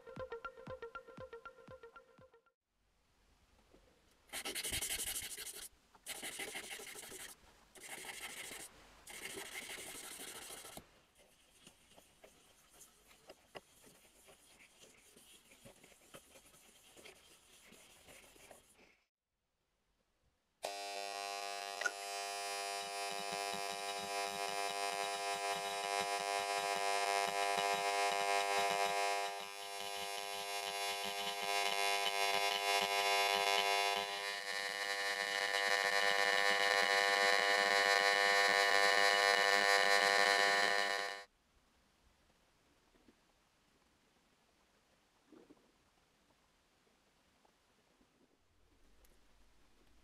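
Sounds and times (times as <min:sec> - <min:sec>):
etching unit buzzing: 0:20.6 - 0:41.3
faint crackle: 0:45.1 - 0:46.4.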